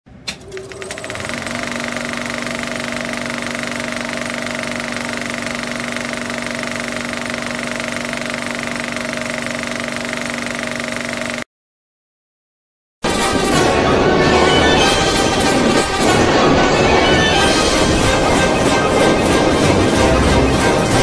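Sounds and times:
film projector rattling: 0.3 - 11.4.

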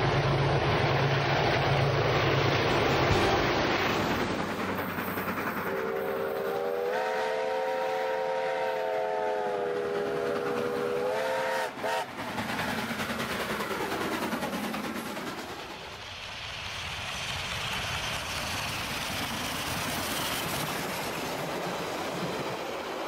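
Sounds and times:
steam locomotive and train passing: 0.0 - 23.0
steam locomotive whistle: 5.7 - 12.1.

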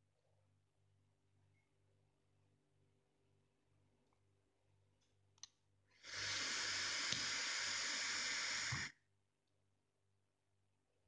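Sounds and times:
vape hissing: 6.0 - 8.9.

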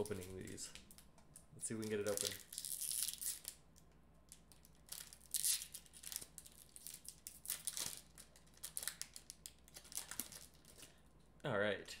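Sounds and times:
wrapper crinkling and tearing: 1.8 - 3.6, 4.3 - 11.0.

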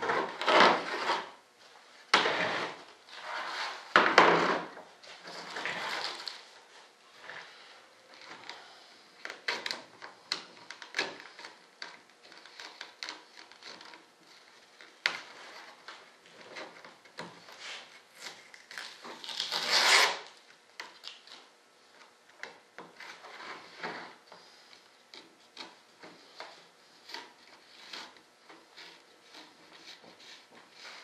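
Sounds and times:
scraping and rubbing foam: 0.0 - 1.4, 2.1 - 7.5, 12.4 - 20.3.

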